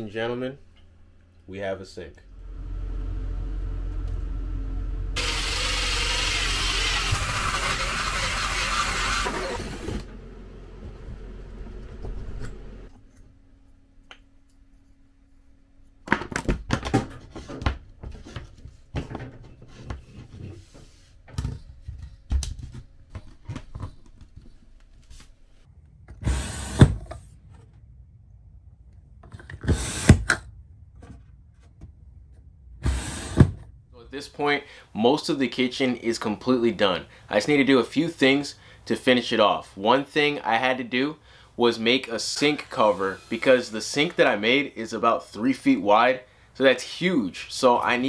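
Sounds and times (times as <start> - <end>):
cordless drill cutting: 5.2 - 10.1, 26.2 - 26.9.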